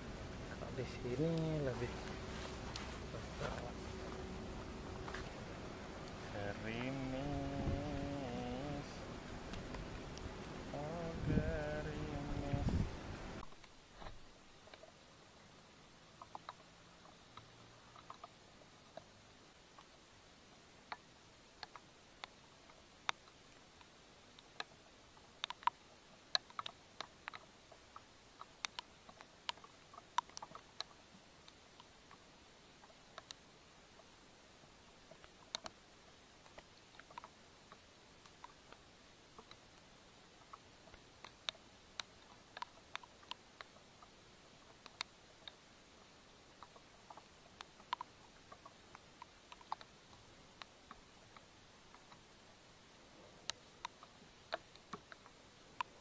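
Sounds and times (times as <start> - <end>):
faint steady hiss: 0.0 - 56.0
light ticks and taps: 20.8 - 32.2, 32.8 - 34.1, 36.4 - 52.3.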